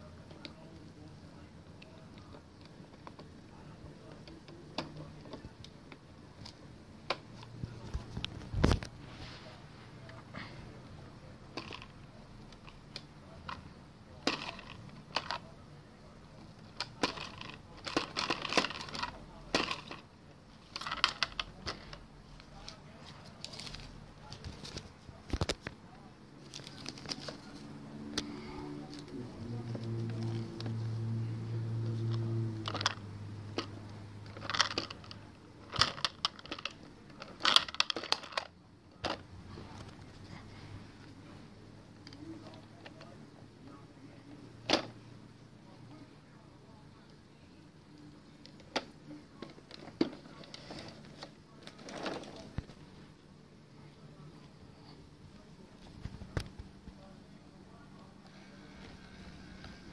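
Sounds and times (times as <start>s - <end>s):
low steady hum: 0.0s - 59.9s
plastic toy clicks and rattles: 14.2s - 15.4s, 16.8s - 20.0s, 20.7s - 21.9s, 32.6s - 33.0s, 33.6s - 39.2s.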